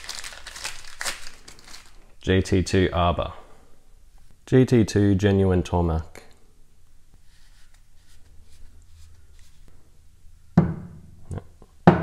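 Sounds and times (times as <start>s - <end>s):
faint rubbing and clicks: 7.1s - 9.8s.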